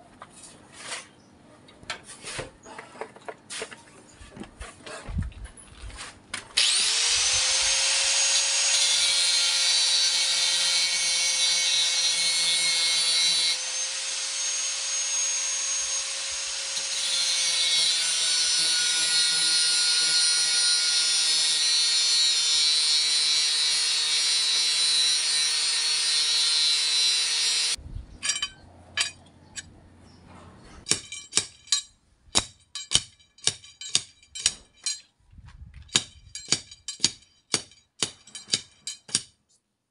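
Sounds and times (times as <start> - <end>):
angle grinder cutting metal: 6.6 - 27.8.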